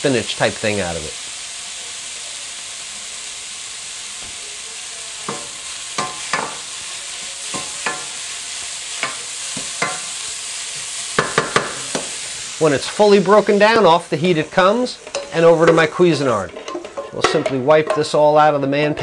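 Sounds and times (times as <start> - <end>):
vegetables sizzling in a frying pan: 0.0 - 19.0
wooden spoon scraping a pan: 14.9 - 18.2.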